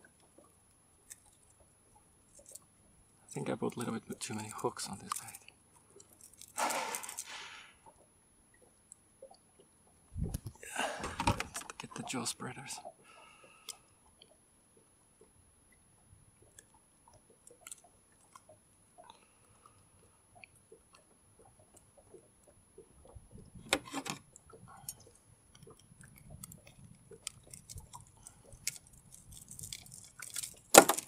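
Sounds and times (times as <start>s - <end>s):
clicks scrapes and rustles of handling: 26.4s - 31.0s.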